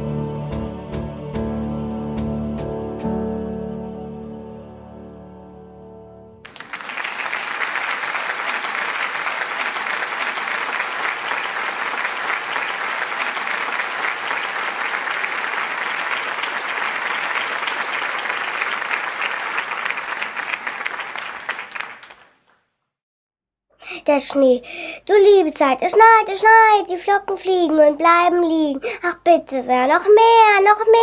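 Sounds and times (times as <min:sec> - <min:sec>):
applause: 0:06.4 - 0:22.6.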